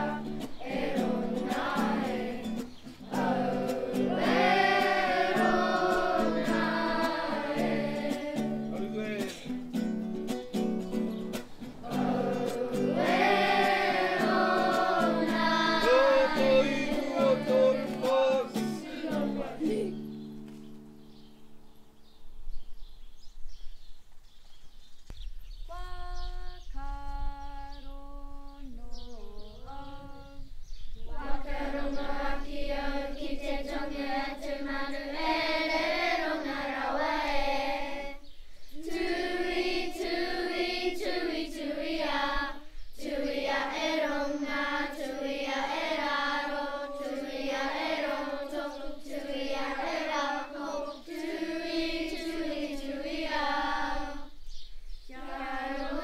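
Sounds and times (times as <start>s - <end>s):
children singing together: 0.0s - 8.8s, 11.7s - 20.2s, 29.0s - 54.4s, 55.1s - 56.0s
single voice singing: 0.0s - 8.8s, 11.8s - 20.1s, 25.7s - 38.2s, 43.6s - 54.3s.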